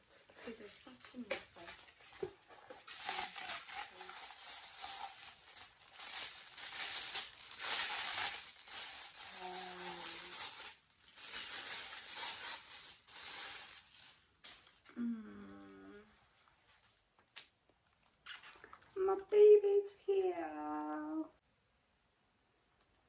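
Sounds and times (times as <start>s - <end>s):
plastic bag crinkling: 0.5s - 14.8s.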